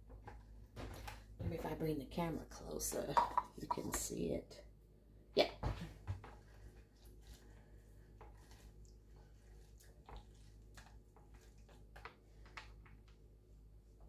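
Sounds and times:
citrus juicer squelching and clicking: 6.2s - 13.3s.

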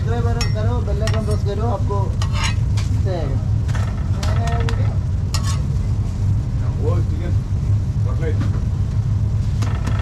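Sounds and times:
steady low hum: 0.0s - 10.0s
spatula scraping a pan: 2.2s - 2.9s, 5.3s - 5.7s.

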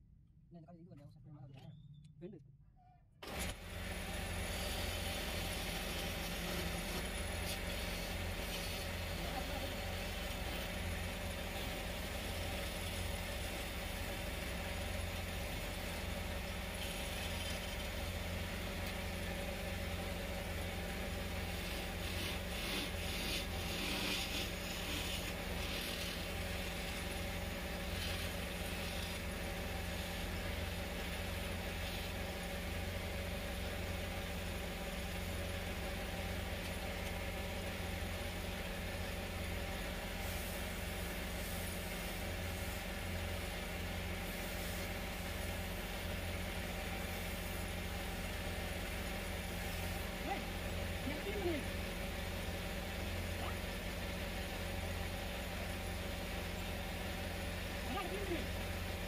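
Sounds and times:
wood lathe motor humming: 3.2s - 59.0s
chisel hissing on wood: 4.5s - 13.3s, 20.9s - 32.4s, 40.1s - 48.3s.

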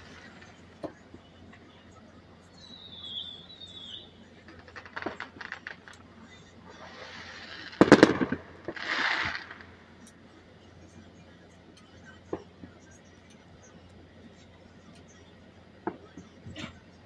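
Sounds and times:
distant fireworks crackling and banging: 0.0s - 17.0s
firework hiss: 4.5s - 6.1s, 6.7s - 10.0s.

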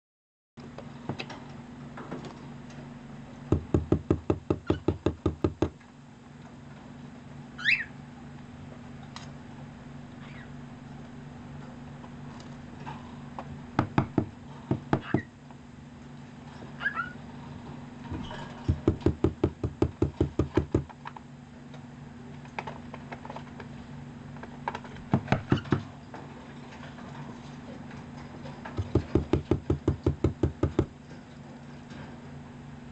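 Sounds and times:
fingers tapping cardboard box: 3.5s - 5.8s, 18.7s - 20.9s, 28.8s - 30.9s
cockatiel chirp: 7.6s - 8.0s.

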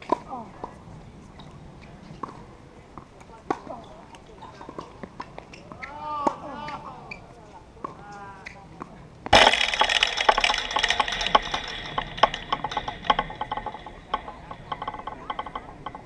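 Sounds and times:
chain-link fence rattling: 9.3s - 16.0s
tennis ball hitting fence: 9.3s - 16.0s.

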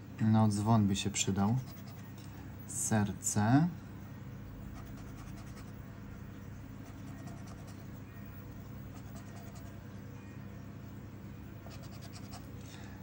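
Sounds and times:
scraping scratch card coating: 1.5s - 2.2s, 4.7s - 5.8s, 6.8s - 9.8s, 11.6s - 12.6s.

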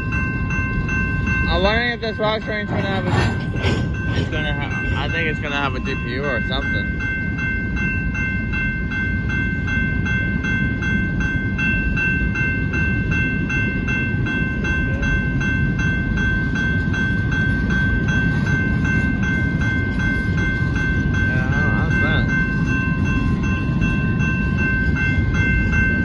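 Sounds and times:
crossing warning bell ringing: 0.0s - 26.0s
freight train rumbling past: 0.0s - 26.0s.

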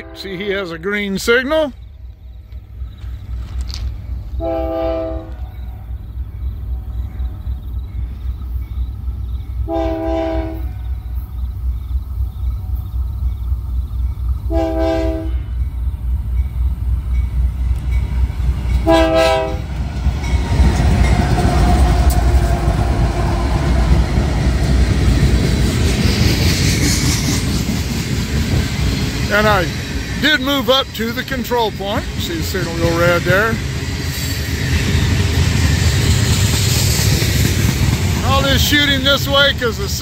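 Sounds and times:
train air horn blasts: 0.0s - 0.4s, 4.4s - 5.6s, 9.7s - 10.9s, 14.5s - 15.6s, 18.8s - 19.7s
locomotive engines and wheels passing: 0.0s - 40.0s.

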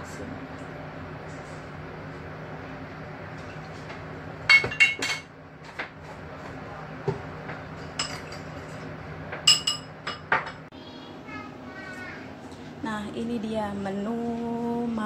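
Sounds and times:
steady low hum: 0.0s - 15.0s
utensils and dishes clinking: 4.5s - 5.9s, 7.5s - 10.7s.

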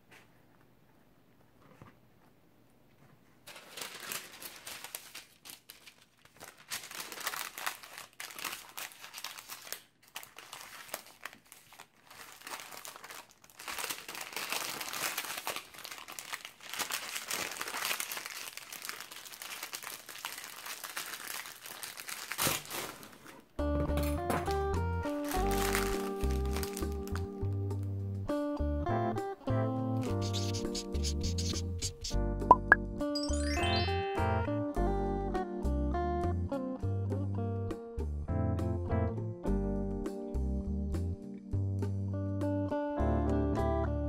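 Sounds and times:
parchment paper crinkling: 3.4s - 23.5s, 25.1s - 27.5s, 30.0s - 32.2s.

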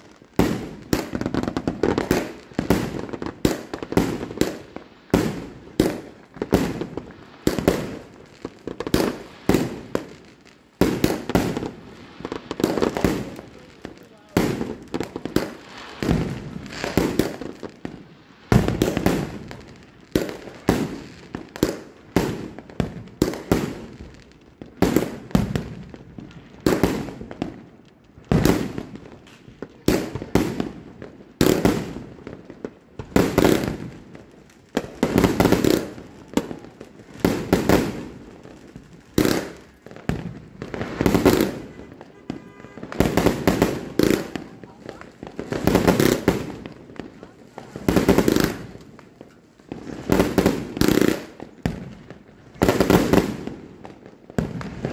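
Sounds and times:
firework shells bursting with bangs: 0.0s - 54.9s.

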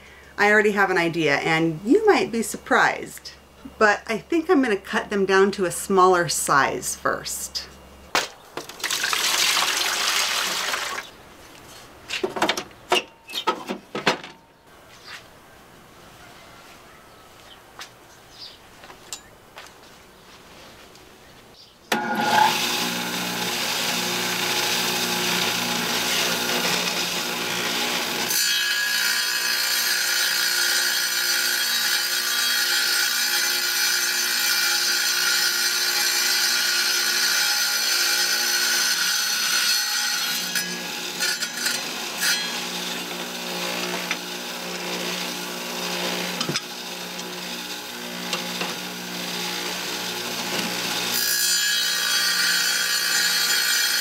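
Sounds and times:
electric tile saw cutting: 8.7s - 11.2s, 21.9s - 54.0s.

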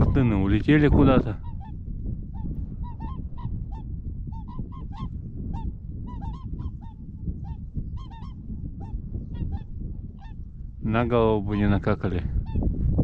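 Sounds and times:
swans honking: 2.8s - 10.4s.

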